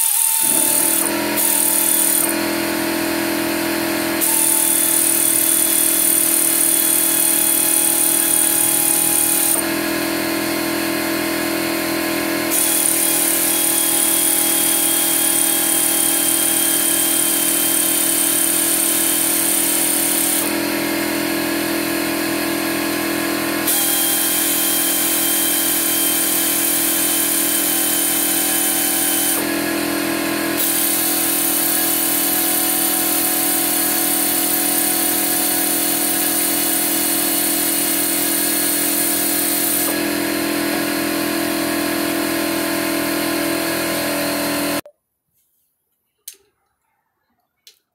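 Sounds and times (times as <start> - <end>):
air ratchet whining: 0.0 - 2.9, 4.1 - 9.8, 12.5 - 20.6, 23.6 - 29.5, 30.5 - 40.0.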